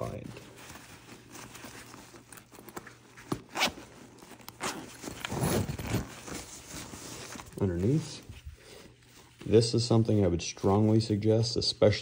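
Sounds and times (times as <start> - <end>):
cloth rustling: 0.0 - 11.4
zipper: 3.3 - 7.0.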